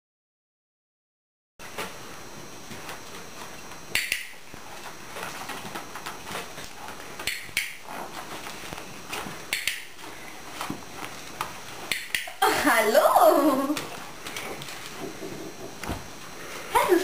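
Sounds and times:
low room hiss: 1.6 - 17.0
dog training clicker clicks: 7.2 - 7.8.

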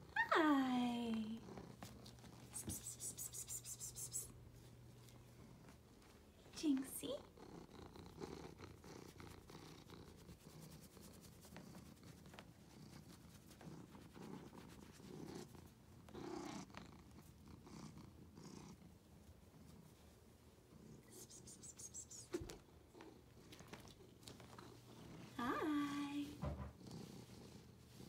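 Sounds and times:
cat purring: 1.0 - 2.5, 4.4 - 21.5, 22.4 - 28.0
soft clicks and rustles: 22.3 - 25.4.

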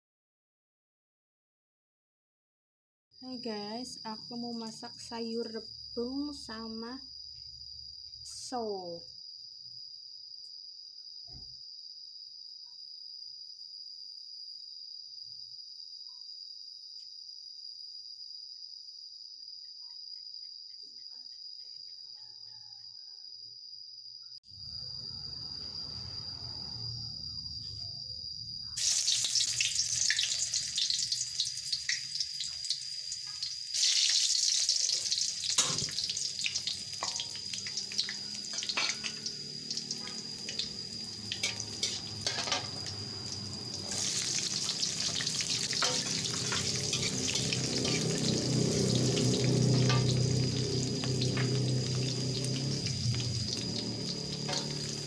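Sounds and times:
hot oil sizzling in a wok: 28.8 - 55.0
high-pitched trill: 39.9 - 55.0.

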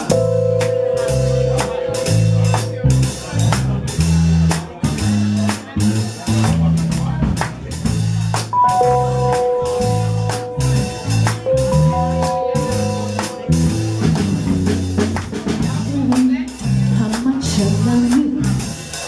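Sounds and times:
live salsa band playing: 0.0 - 4.6, 8.4 - 17.9.

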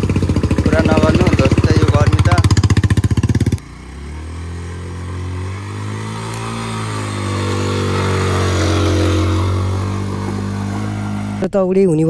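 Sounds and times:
motorcycle engine revving: 0.0 - 11.5.

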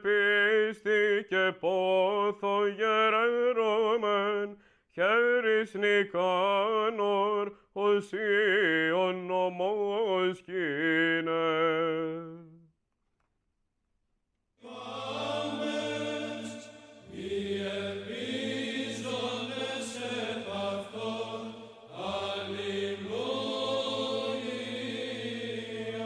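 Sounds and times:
choir chanting over a drone: 14.6 - 26.0.

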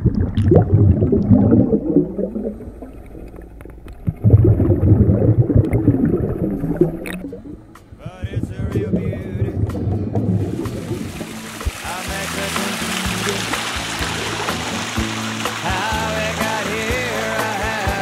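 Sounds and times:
muffled underwater gurgling: 0.0 - 17.4
sharp clicks: 5.6 - 9.9.

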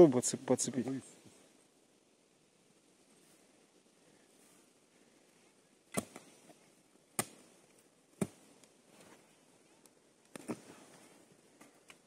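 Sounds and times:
shovel chopping into soil: 5.9 - 6.3, 7.2 - 7.4.

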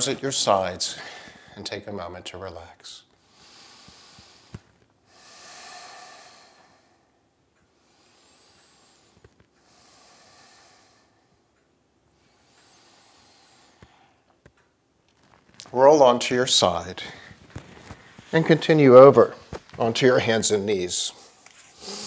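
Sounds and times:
person breathing deeply: 3.2 - 11.5, 12.1 - 14.3, 21.1 - 22.0.

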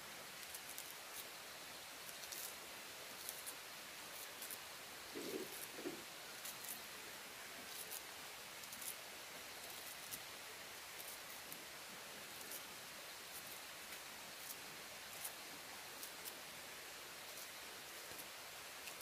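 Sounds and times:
steady hiss: 0.0 - 19.0
faint rustling: 3.2 - 6.8.

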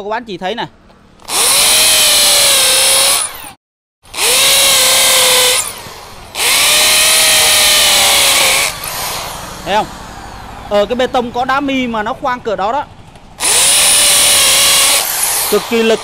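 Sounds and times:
hammer drill boring into concrete: 1.2 - 10.3, 13.4 - 16.0.

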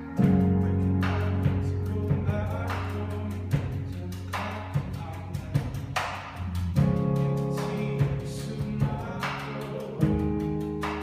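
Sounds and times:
electric guitars and bass: 0.0 - 5.0
man singing: 0.0 - 6.2, 6.8 - 11.0
drum and cymbal hits: 0.2 - 11.0.

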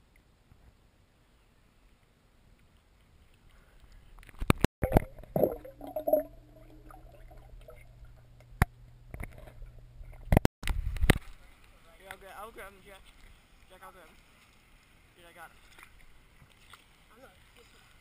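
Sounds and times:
water sloshing and gurgling: 4.2 - 10.5, 15.5 - 17.8
low underwater hum: 4.8 - 10.4.

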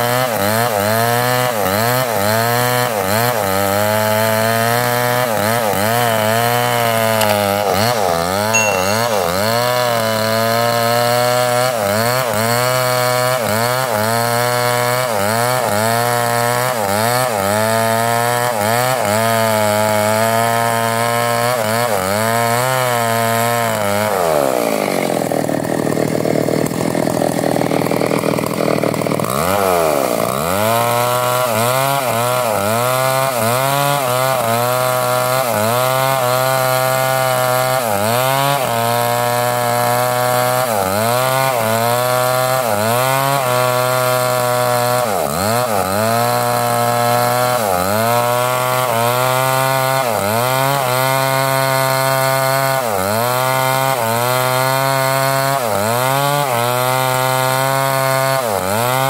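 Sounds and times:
chainsaw cutting log: 0.0 - 59.0.

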